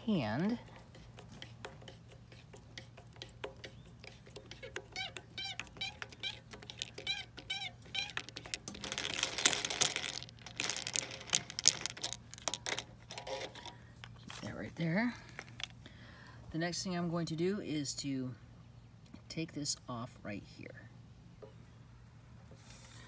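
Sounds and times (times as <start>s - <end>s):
rustling handling noise: 0.0s - 15.8s.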